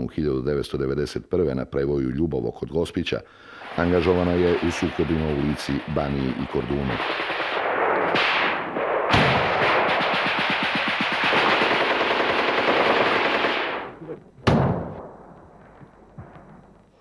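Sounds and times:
automatic gunfire: 3.6s - 15.0s
loud single shot: 6.9s - 11.0s, 14.4s - 16.6s.

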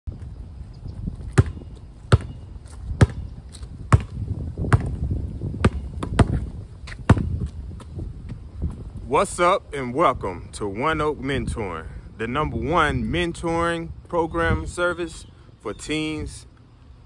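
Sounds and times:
basketball bouncing on concrete: 1.2s - 8.0s.

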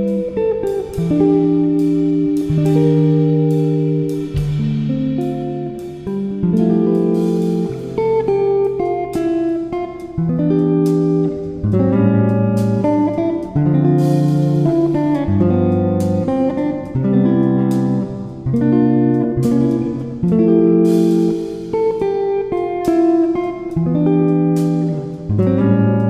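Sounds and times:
plucked string melody: 0.0s - 26.0s
low bass notes: 0.9s - 8.5s.

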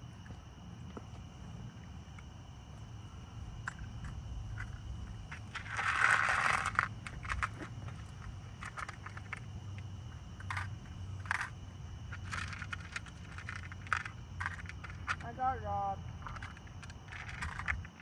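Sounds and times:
steady low hum: 0.0s - 18.0s
rustling scrape: 5.3s - 8.0s.

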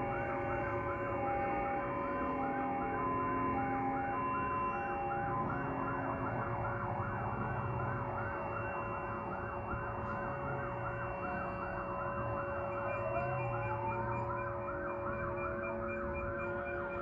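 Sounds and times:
fast wailing siren: 0.0s - 17.0s
steady siren tone: 0.0s - 17.0s
two-tone siren: 0.0s - 17.0s.

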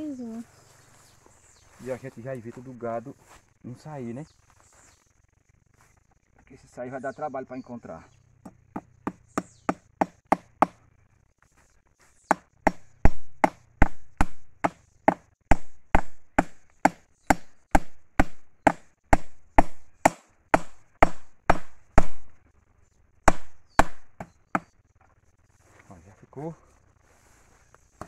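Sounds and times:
hammer hitting staple into wood: 23.3s - 24.7s.

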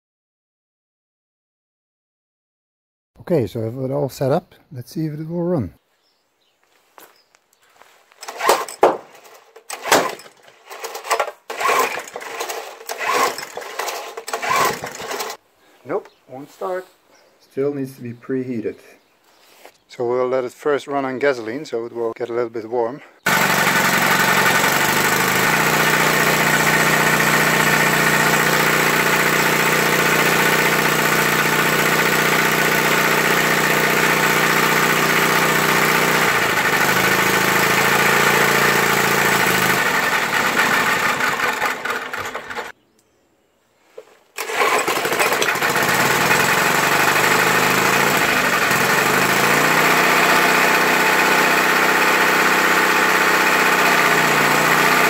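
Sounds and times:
small lawn mower engine running: 8.2s - 15.4s, 23.3s - 42.8s, 44.4s - 55.0s.

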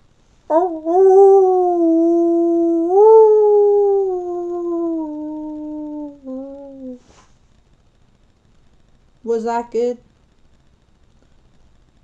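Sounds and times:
woman imitating wolf howl: 0.5s - 7.0s.

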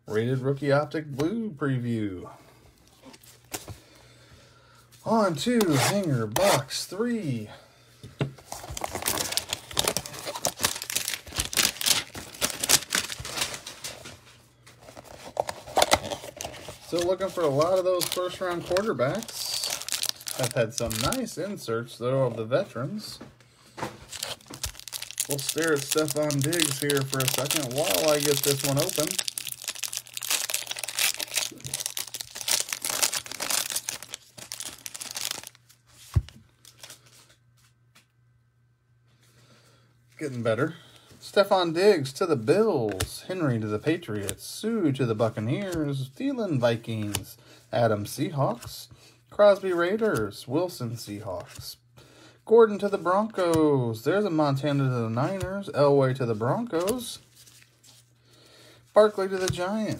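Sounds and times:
cardboard box crinkling and tearing: 8.5s - 13.9s, 14.8s - 21.2s, 24.1s - 35.7s.

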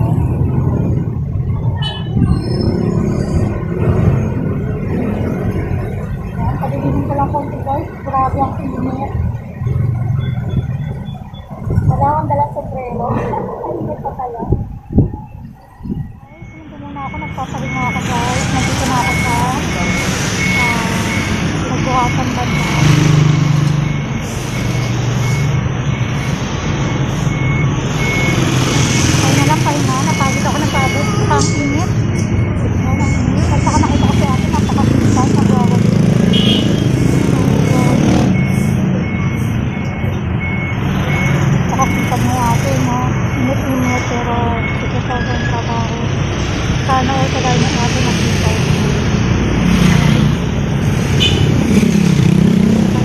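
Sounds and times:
passing motor vehicles: 0.0s - 53.0s
traffic rumble: 0.0s - 53.0s
wind on microphone: 10.3s - 16.3s.

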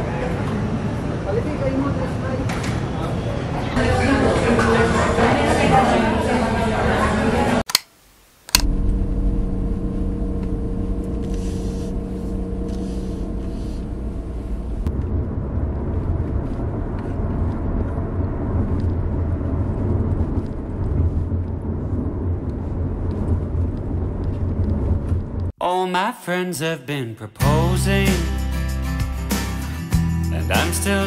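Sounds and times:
car engine hum: 8.5s - 25.5s
car rumbling on road: 8.6s - 25.5s.

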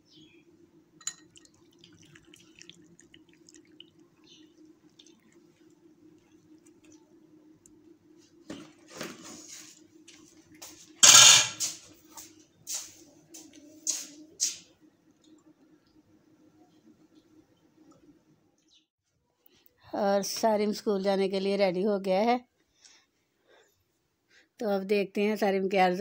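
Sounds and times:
low steady hum: 0.0s - 18.8s
faint ticks and drips: 1.1s - 7.8s.

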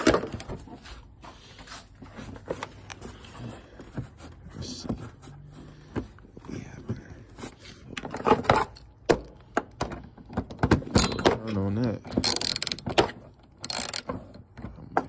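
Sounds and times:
metal tool clicks and clanks: 10.9s - 15.0s
rapid ratchet clicking: 12.1s - 13.0s, 13.6s - 14.1s.

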